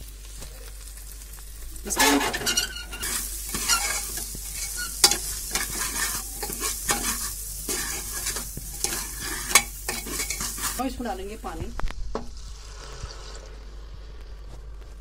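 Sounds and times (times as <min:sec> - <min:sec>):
rice frying in oil sizzling: 0:00.0 - 0:15.0
ladle scraping pot: 0:01.9 - 0:10.8.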